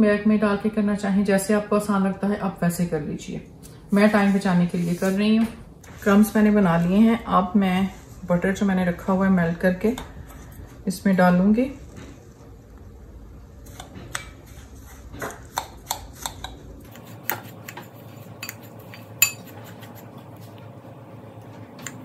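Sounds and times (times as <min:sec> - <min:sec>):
spoon stirring crumbs: 0:13.6 - 0:20.6
spoon clinking on glass: 0:19.2 - 0:19.5.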